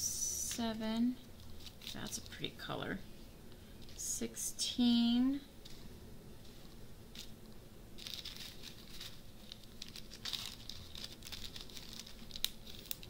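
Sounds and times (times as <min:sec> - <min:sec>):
plastic bags crinkling: 0:01.3 - 0:02.7, 0:07.1 - 0:13.0.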